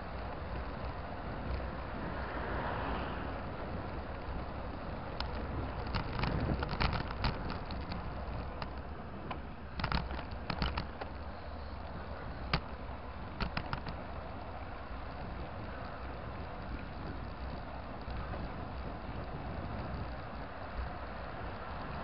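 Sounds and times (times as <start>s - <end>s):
wind and road rumble: 0.0s - 22.0s
bike mount rattling clicks: 5.1s - 11.2s, 13.4s - 14.1s.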